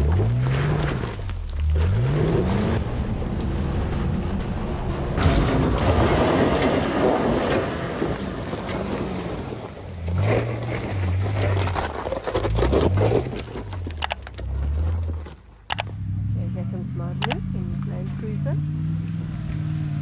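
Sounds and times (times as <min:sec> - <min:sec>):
tyres on loose gravel and rock: 0:00.0 - 0:02.7, 0:05.3 - 0:15.9
suv engine revving: 0:00.0 - 0:02.8.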